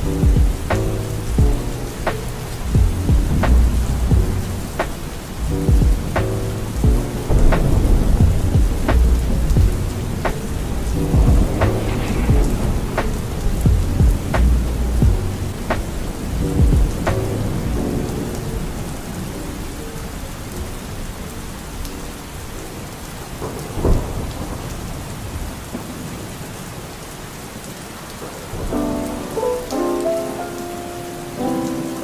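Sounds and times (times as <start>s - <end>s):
low clap of thunder: 0.0s - 18.2s, 23.3s - 26.4s
soft music: 0.0s - 20.1s, 28.5s - 32.0s
steady rain falling: 0.0s - 32.0s.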